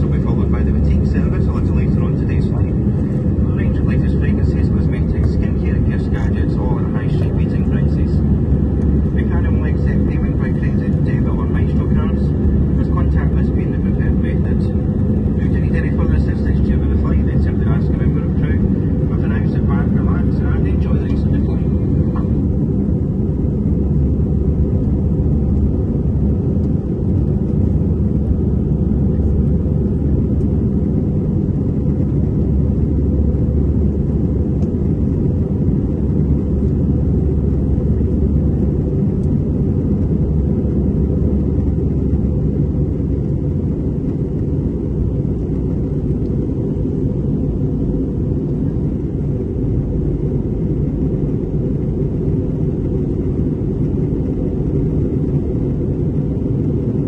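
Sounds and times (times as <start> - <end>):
airliner cabin engine rumble: 0.0 - 57.0.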